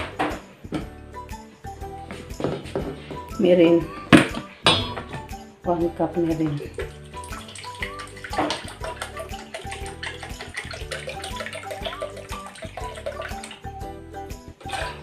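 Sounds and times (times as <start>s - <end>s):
background music: 0.0s - 15.0s
liquid trickling into a bowl: 6.6s - 13.9s, 14.6s - 15.0s.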